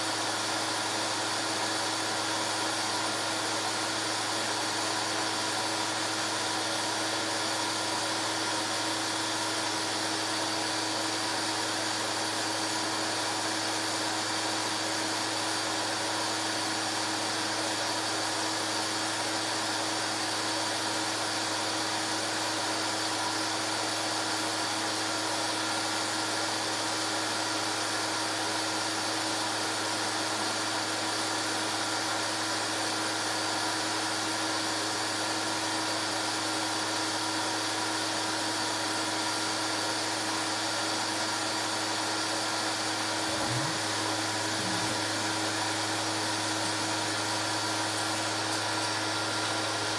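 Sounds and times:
steady whining tones: 43.0 - 48.7.

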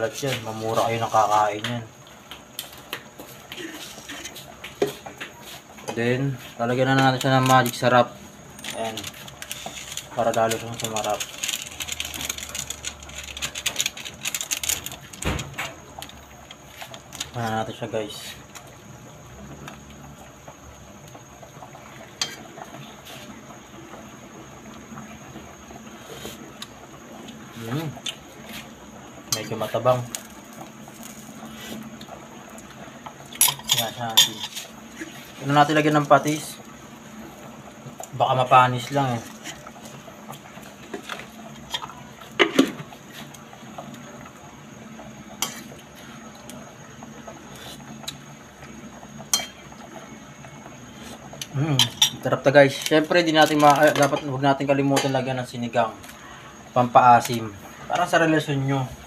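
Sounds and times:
broth simmering: 0.0 - 59.0
ladle stirring in metal pot: 8.6 - 15.2, 33.3 - 35.8.

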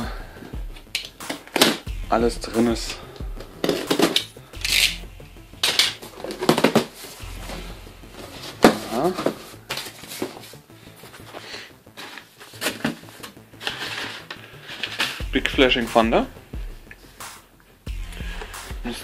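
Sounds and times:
packing paper rustling: 12.0 - 15.2.

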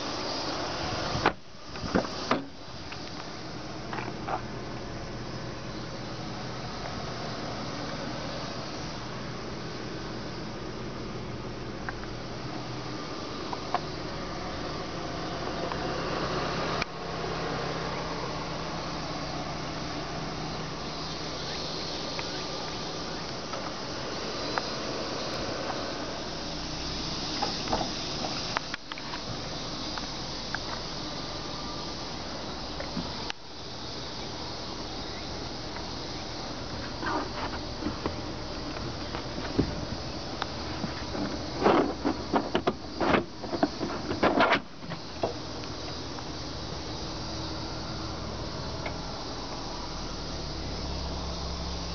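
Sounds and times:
steady hiss: 0.0 - 51.9
board knocks and plastic clatters: 40.8 - 45.4.

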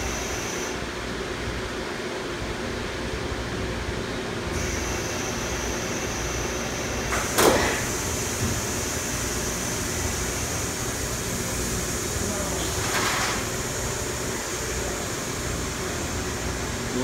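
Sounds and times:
thin high whine: 0.0 - 0.9, 4.5 - 17.0
thermoforming machine running: 0.0 - 17.0.

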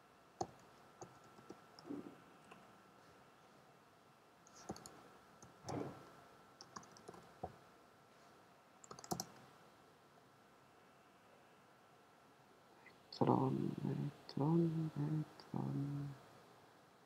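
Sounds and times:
keyboard keys tapping: 0.4 - 2.0, 4.5 - 6.0, 6.6 - 7.6, 8.8 - 9.4.

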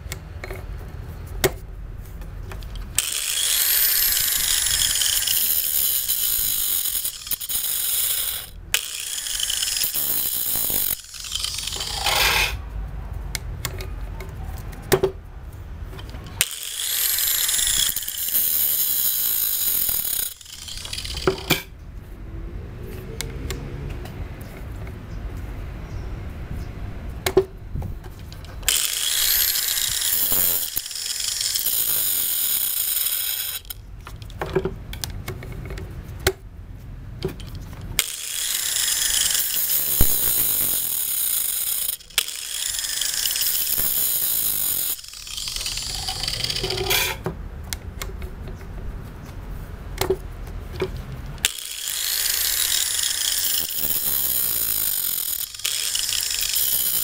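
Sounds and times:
sharp clicks and knocks: 0.0 - 12.6, 13.3 - 15.2, 19.9 - 21.8, 27.2 - 36.5, 37.2 - 57.0
angle grinder grinding chain: 2.6 - 12.6, 16.0 - 21.8, 28.2 - 34.4, 37.3 - 47.2, 50.9 - 57.0.

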